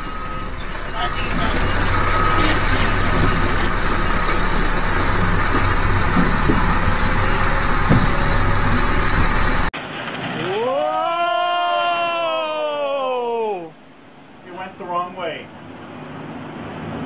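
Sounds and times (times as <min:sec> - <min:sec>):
heavy diesel machinery running: 0:00.0 - 0:09.8
noisy hiss: 0:12.7 - 0:16.0.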